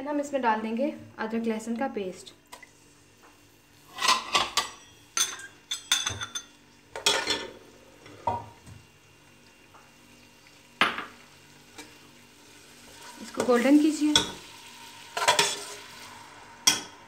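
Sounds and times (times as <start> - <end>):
faint frying: 0.0 - 17.0
metal utensils scraping a pot: 3.9 - 5.5, 15.2 - 15.9.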